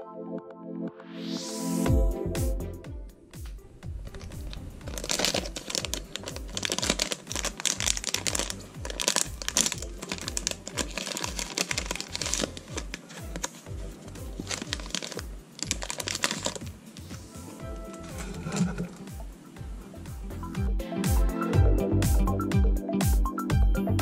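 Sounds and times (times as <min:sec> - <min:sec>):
background music with bass beat: 0:01.2 - 0:24.0
foil wrapper crinkling: 0:04.1 - 0:17.2, 0:17.8 - 0:19.1.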